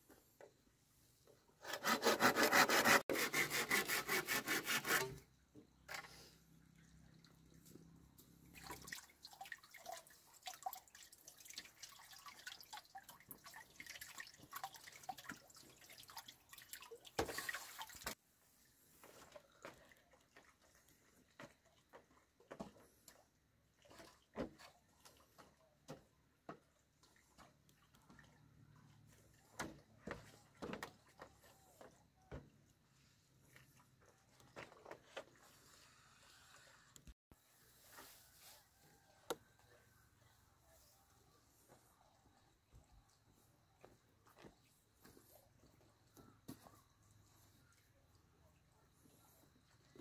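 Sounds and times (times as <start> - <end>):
hand saw cutting bamboo: 1.6 - 5.2.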